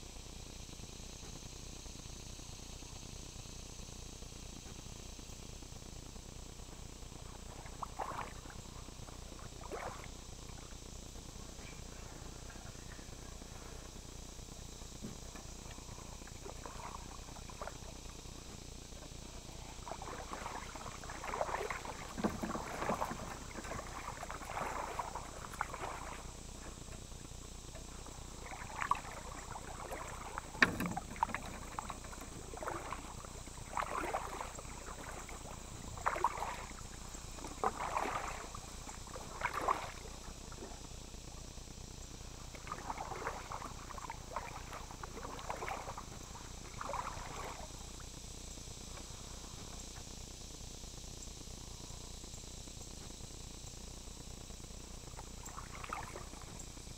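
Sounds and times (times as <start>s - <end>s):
kayak paddle swishing through water: 6.7s - 50.0s, 55.1s - 56.7s.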